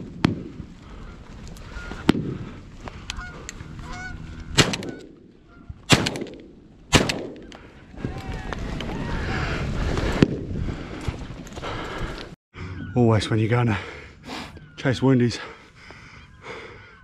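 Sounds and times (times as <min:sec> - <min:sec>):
geese honking: 0:00.9 - 0:02.1, 0:03.1 - 0:05.8
shotgun shots: 0:04.6 - 0:05.3, 0:05.9 - 0:07.6.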